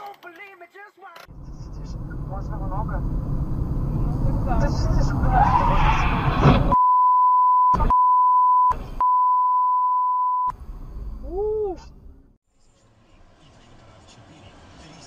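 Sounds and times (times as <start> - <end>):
road traffic noise: 1.3 - 6.8, 10.5 - 15.0
censor bleep tone: 6.8 - 10.5.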